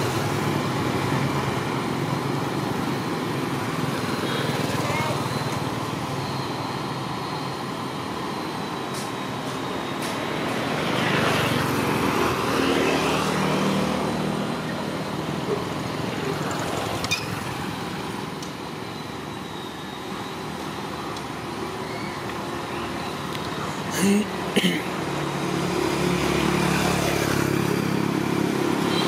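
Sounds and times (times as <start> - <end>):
motorbikes and cars passing: 0.0 - 6.2, 10.2 - 18.7, 22.4 - 29.0.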